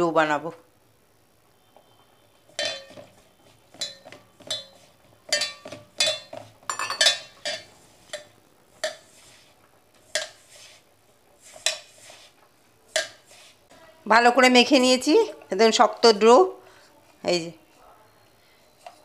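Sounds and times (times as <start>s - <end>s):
metallic clinks against a pot: 2.6s - 3.1s, 3.7s - 9.0s.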